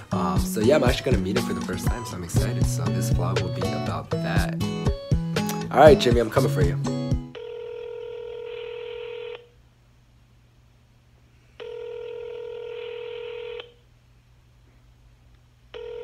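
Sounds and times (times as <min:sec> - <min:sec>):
phone ringback tone: 0:07.2 - 0:09.5, 0:11.6 - 0:13.8, 0:15.8 - 0:16.0.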